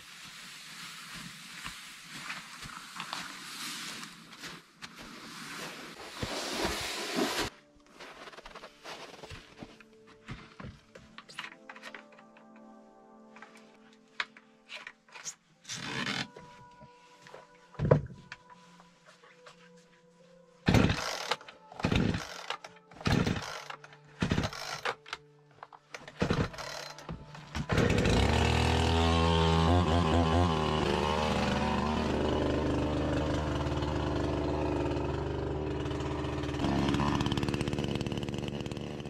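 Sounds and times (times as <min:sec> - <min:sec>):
chainsaw engine idling: 0:20.7 - 0:24.8, 0:26.2 - 0:39.0
chainsaw starter cord pulls: 0:20.7 - 0:25.2, 0:25.9 - 0:39.0.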